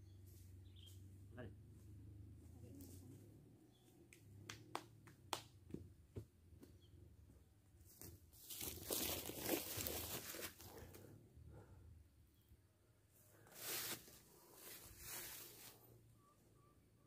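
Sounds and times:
footsteps on dry leaves: 0:08.4 - 0:10.8, 0:13.5 - 0:15.9.

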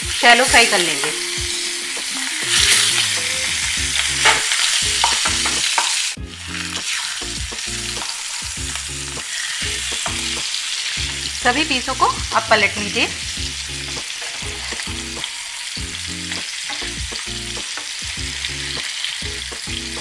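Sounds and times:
fish sizzling in oil: 0:00.0 - 0:20.0
spatula scraping and knocking pan: 0:04.0 - 0:06.1.

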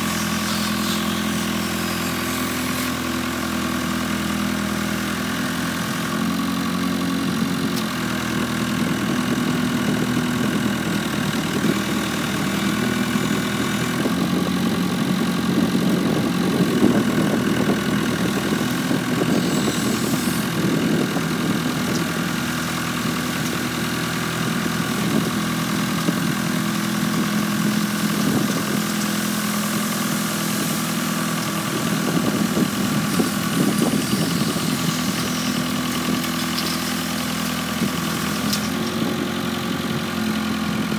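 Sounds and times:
sweeper engine running: 0:00.0 - 0:40.9
rotary broom sweeping dirt: 0:22.0 - 0:39.0.

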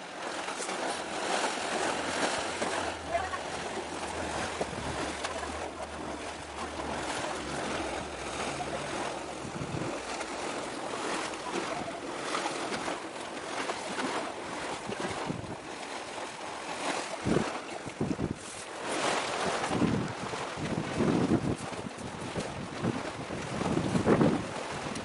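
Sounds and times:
sea waves: 0:00.0 - 0:25.0
wind: 0:00.0 - 0:25.0
low hum: 0:00.9 - 0:13.5.

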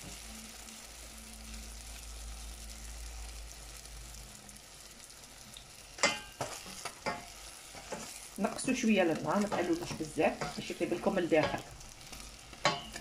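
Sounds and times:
oil sizzling: 0:00.0 - 0:13.0
wooden spoon striking pan: 0:09.4 - 0:11.7, 0:12.6 - 0:13.0.

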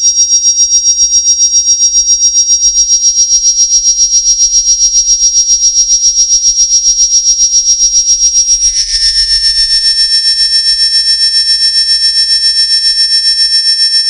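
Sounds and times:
pulsing high synthesized tone: 0:08.4 - 0:12.4.

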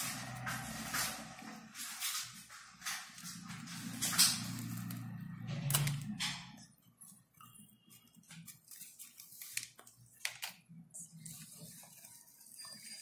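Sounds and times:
paper handling: 0:00.0 - 0:13.0
scissors snipping paper: 0:03.0 - 0:10.7.

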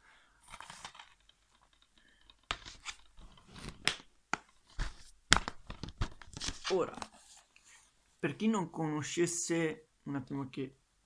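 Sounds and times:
plastic cases rustling: 0:00.4 - 0:07.6.

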